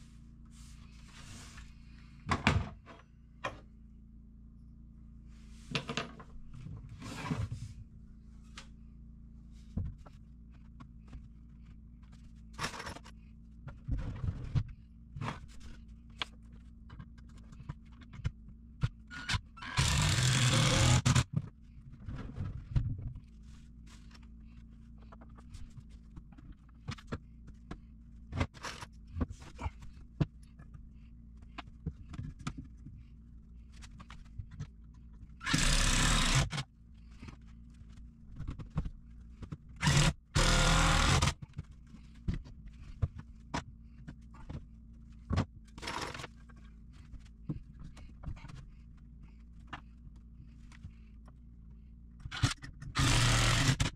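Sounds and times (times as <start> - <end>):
cordless drill driving screws: 19.6 - 21.2, 35.4 - 36.6, 39.8 - 41.4, 52.4 - 53.9.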